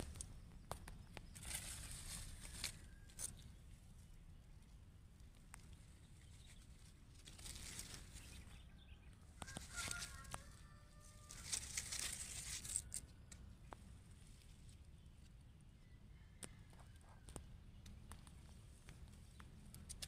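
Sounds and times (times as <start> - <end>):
leaves rustling against camera: 0.0 - 15.3.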